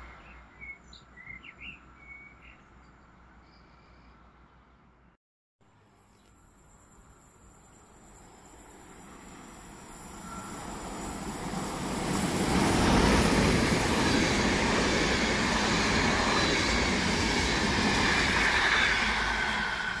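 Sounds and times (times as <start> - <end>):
passenger train running past: 6.6 - 20.0.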